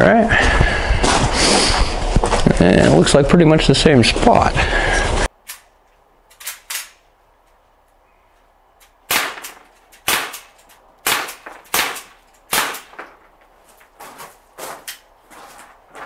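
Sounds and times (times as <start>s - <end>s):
pellet gun shots cracking: 9.1s - 13.1s.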